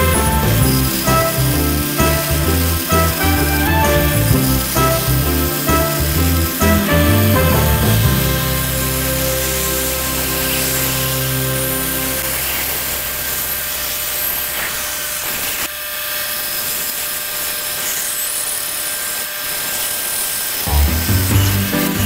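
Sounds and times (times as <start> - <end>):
background music: 0.0 - 13.5, 20.7 - 22.0
band saw cutting wood: 0.0 - 22.0.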